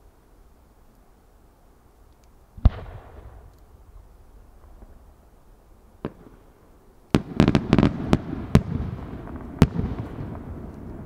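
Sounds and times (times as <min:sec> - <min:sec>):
fireworks banging: 0:06.0 - 0:11.0.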